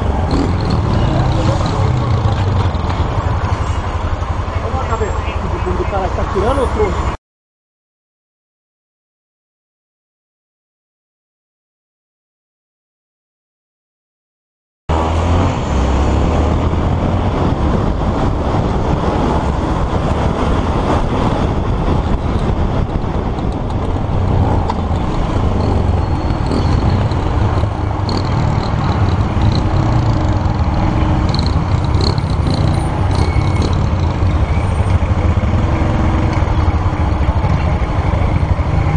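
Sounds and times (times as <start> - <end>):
motorcycle engine running: 0.0 - 5.8, 16.8 - 38.9
road and wind noise: 0.0 - 7.2, 14.9 - 38.9.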